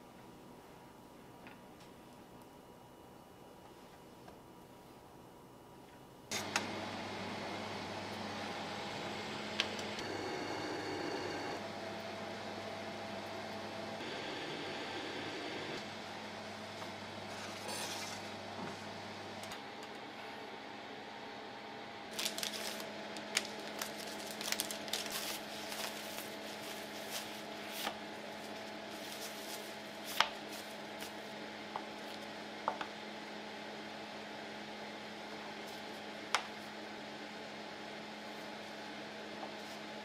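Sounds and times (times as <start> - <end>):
plastic film crinkling: 22.1 - 31.2.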